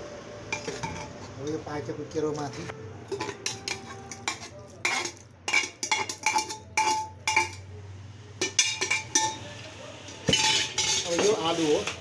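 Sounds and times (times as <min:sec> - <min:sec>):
steel pot clinking on bowl: 0:00.5 - 0:01.2, 0:03.1 - 0:07.7, 0:08.4 - 0:09.5, 0:10.2 - 0:11.4.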